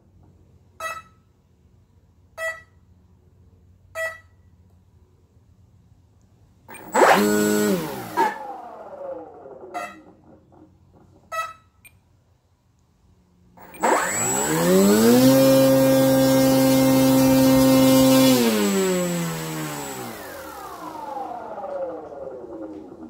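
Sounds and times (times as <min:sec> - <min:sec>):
model plane motor and propeller: 0:06.7 - 0:10.6, 0:13.6 - 0:23.0.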